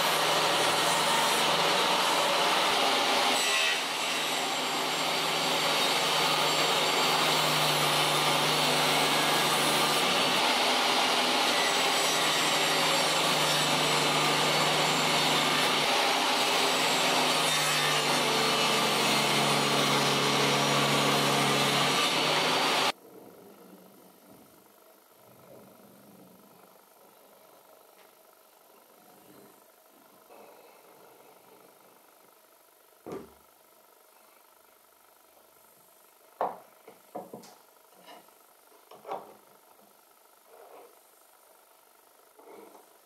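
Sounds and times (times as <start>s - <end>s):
table saw ripping wood: 0.0s - 22.9s.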